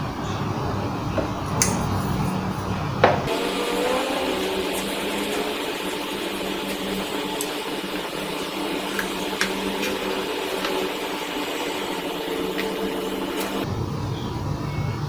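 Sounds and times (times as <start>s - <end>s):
mechanical hum with tones: 0.0s - 15.0s.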